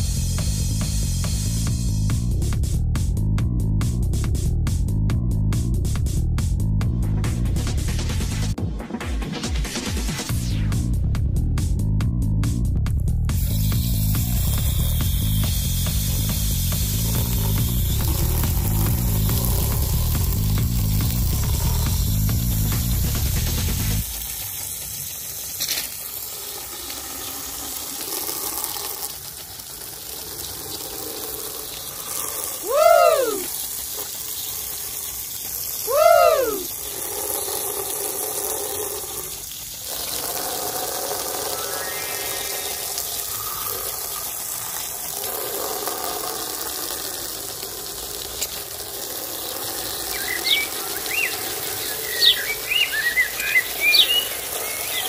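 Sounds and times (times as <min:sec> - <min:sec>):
water jet spraying: 0:00.0 - 0:02.8, 0:13.2 - 0:55.0
birds chirping: 0:41.2 - 0:44.7, 0:49.9 - 0:55.0.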